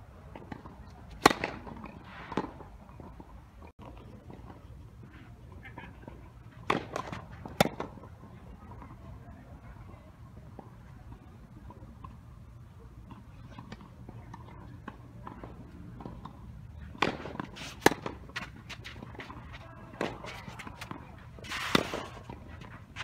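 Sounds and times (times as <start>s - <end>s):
racket hitting tennis ball: 1.1s - 2.6s, 6.6s - 7.9s, 16.9s - 23.0s.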